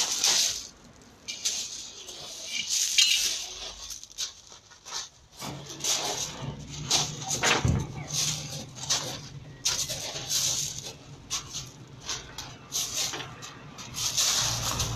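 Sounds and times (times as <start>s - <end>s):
feet crunching on gravel: 8.0s - 14.9s.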